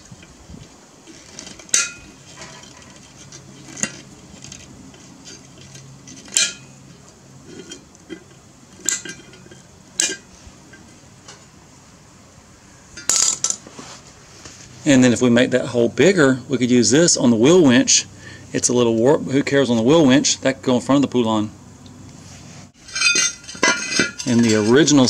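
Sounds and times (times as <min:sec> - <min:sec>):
pliers clinking on steel rim: 0:07.5 - 0:11.4, 0:22.8 - 0:25.0.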